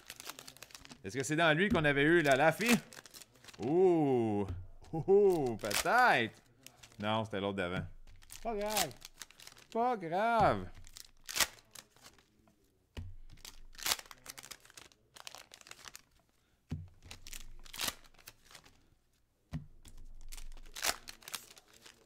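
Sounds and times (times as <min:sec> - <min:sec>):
wrappers crinkling and tearing: 0:00.0 - 0:04.2, 0:04.9 - 0:07.1, 0:08.1 - 0:09.8, 0:10.7 - 0:12.4, 0:13.2 - 0:16.2, 0:17.0 - 0:18.8, 0:19.9 - 0:22.0
cards being handled: 0:00.0 - 0:18.9, 0:19.5 - 0:22.0.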